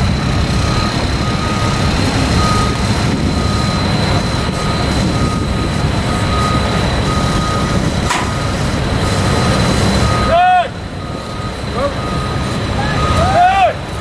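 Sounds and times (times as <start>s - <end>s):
backup alarm beeping: 0.0s - 13.3s
truck diesel engine rumble: 0.0s - 14.0s.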